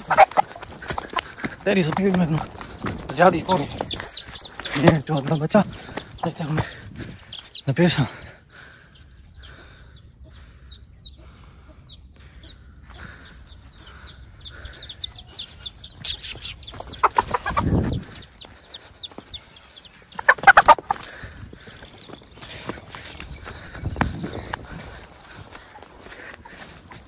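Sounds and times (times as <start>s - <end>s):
rooster clucking and squawking: 0.0s - 1.6s, 16.2s - 18.0s, 20.2s - 21.0s
small birds chirping: 0.0s - 27.0s.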